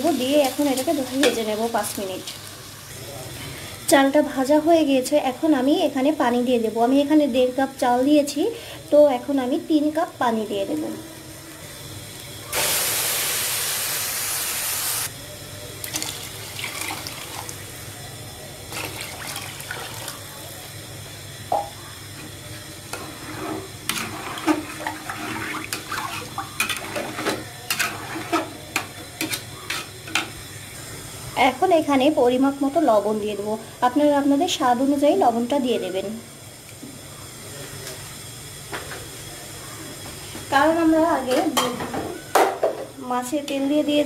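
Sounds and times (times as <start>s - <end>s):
water pouring into pot: 15.8s - 17.9s, 18.7s - 20.3s, 23.1s - 28.4s
metal spatula scraping pot: 22.9s - 30.3s.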